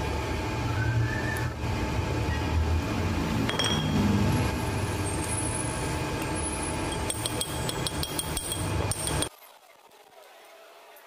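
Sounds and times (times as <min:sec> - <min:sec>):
steel rod tapping metal ring: 0:03.5 - 0:04.0, 0:06.8 - 0:09.3.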